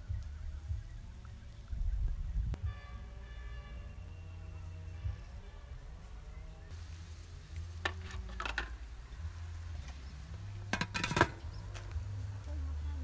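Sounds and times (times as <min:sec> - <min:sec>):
low steady rumble: 0:00.0 - 0:13.0
metal lid clattering onto pot: 0:10.7 - 0:11.4.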